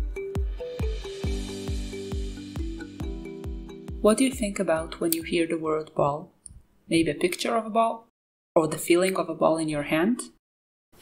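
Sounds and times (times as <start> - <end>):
background music with low thumps: 0.0 - 5.4.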